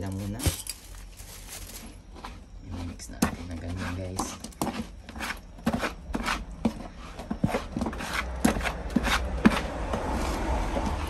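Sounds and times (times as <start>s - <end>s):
scoop scraping dry bait: 0.0s - 10.5s.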